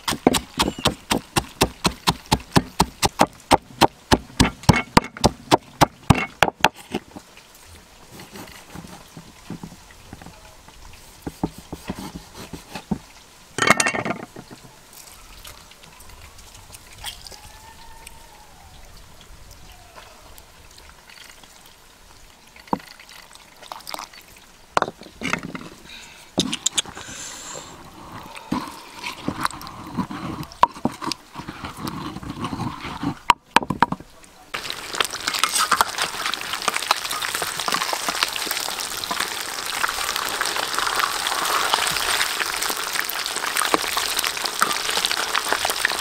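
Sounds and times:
pestle knocking in mortar: 0.0 - 6.7.

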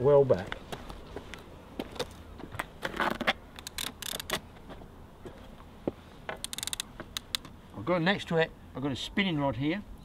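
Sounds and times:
fishing reel clicker ticking: 6.4 - 7.4.

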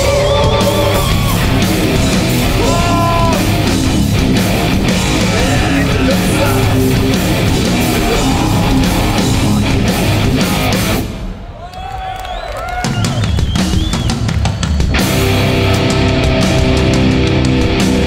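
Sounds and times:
bending guitar notes: 0.0 - 11.0
hardcore band playing live: 0.0 - 11.3, 12.8 - 18.0.

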